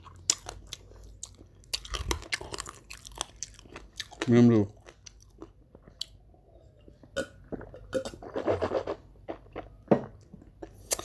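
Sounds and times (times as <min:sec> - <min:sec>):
person gulping and swallowing: 0:07.0 - 0:08.4
person burping: 0:07.2 - 0:08.2.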